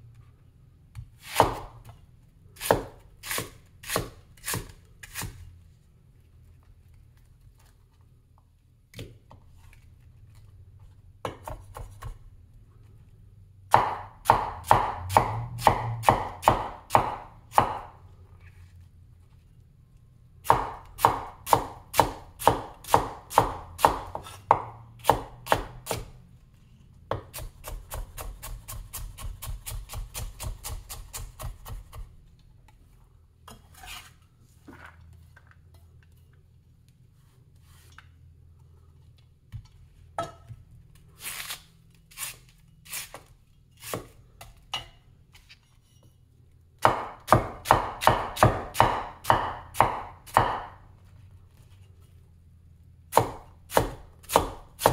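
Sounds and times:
cleaver chopping on wooden board: 13.7s - 17.9s, 20.5s - 26.1s, 46.8s - 50.8s, 53.1s - 54.9s.

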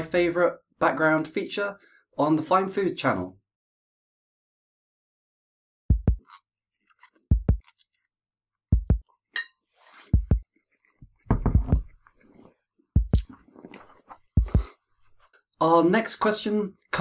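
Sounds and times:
heartbeat thumps: 5.9s - 6.2s, 7.3s - 7.7s, 8.7s - 9.0s, 10.1s - 12.0s, 13.0s - 13.4s, 14.3s - 14.7s
chewing noodles: 6.2s - 8.2s.

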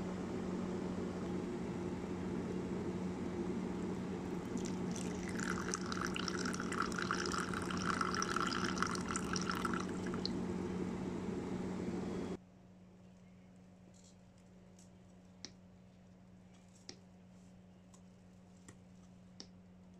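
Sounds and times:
steady low hum: 0.0s - 12.4s
coffee pouring into a cup: 3.9s - 10.4s.

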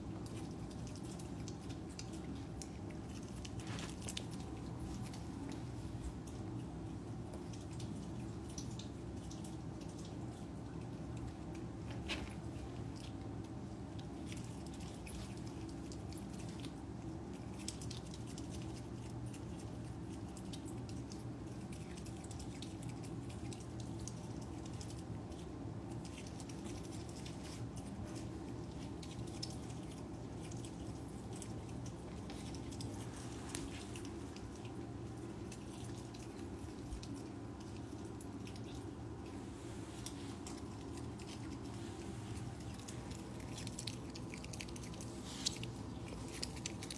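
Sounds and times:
low room hum: 0.0s - 46.9s
otter crunching kibble: 0.0s - 46.9s.

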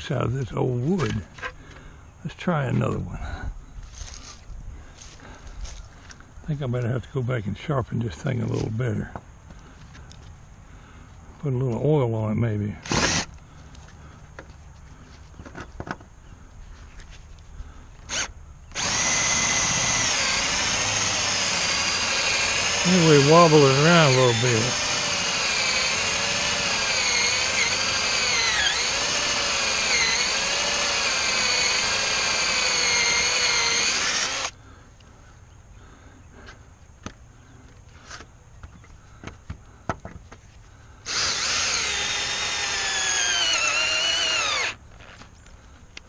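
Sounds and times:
cordless drill whining: 12.8s - 13.4s, 18.1s - 34.6s, 41.0s - 45.2s.

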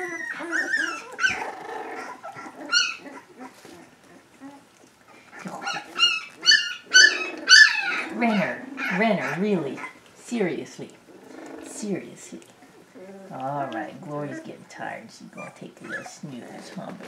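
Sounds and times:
puppies yipping and squealing: 0.0s - 10.1s, 15.4s - 16.3s.

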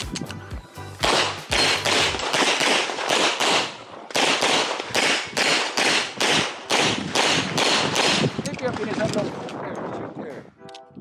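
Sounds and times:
pistol shots with echo: 1.0s - 8.6s.

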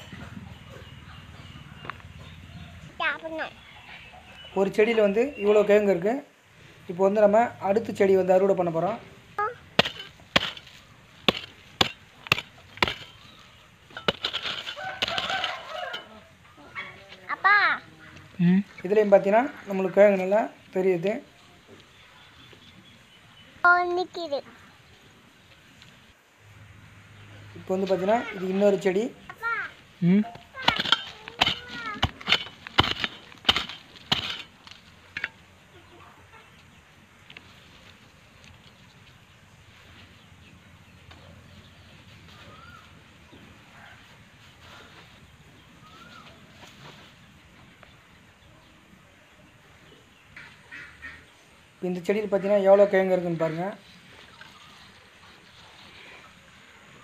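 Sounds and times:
hoe chopping into soil: 9.7s - 16.1s, 30.6s - 34.9s.

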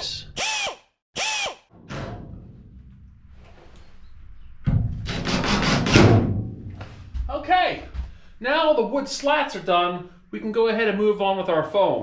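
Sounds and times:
cordless drill driving screws: 0.4s - 1.6s.

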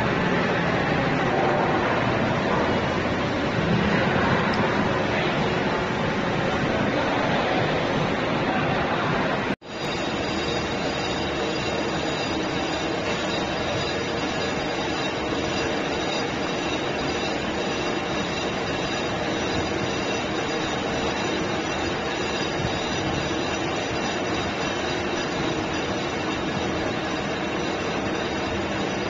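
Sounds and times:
lathe turning brake disc: 9.6s - 29.0s.

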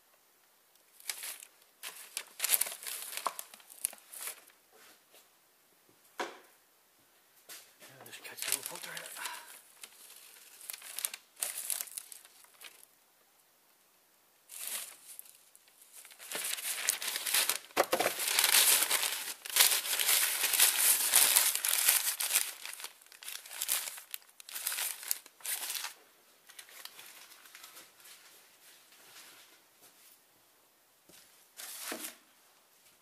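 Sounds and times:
newspaper rustling and crumpling: 0.9s - 4.5s, 8.2s - 12.9s, 14.5s - 28.3s.

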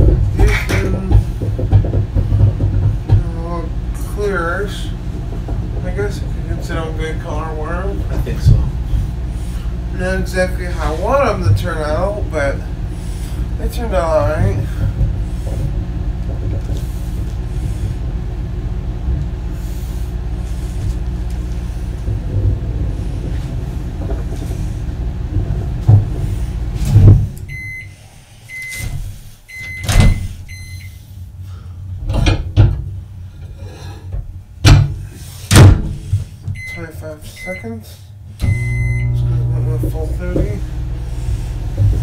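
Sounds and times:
loud clunks: 0.0s - 3.3s, 20.5s - 27.8s, 32.0s - 33.0s, 34.1s - 36.7s
microwave oven humming: 0.0s - 42.0s
microwave beeping: 27.4s - 31.1s, 36.6s - 41.0s.

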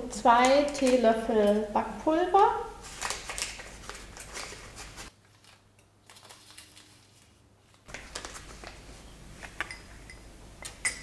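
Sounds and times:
paper sachet crinkling: 2.8s - 8.9s.

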